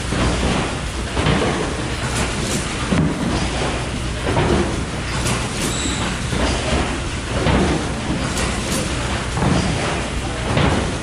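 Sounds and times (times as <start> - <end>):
machine clattering: 0.0 - 11.0
heavy machine knocks: 0.1 - 11.0.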